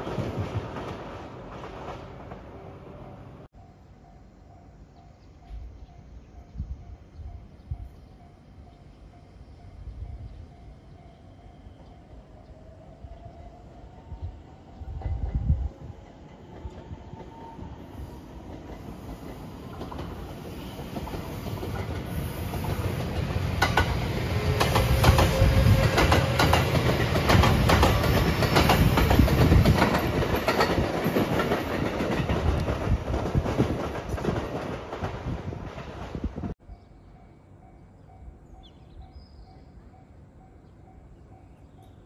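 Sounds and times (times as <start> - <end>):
electric train passing: 0.0 - 42.0
wheels clacking over rail joints: 18.4 - 36.3.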